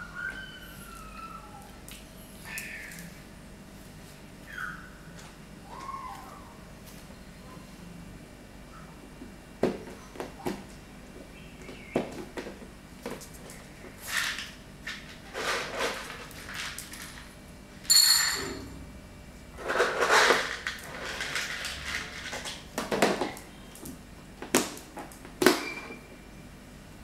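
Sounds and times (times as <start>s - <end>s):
ringing clink: 17.9s - 18.7s.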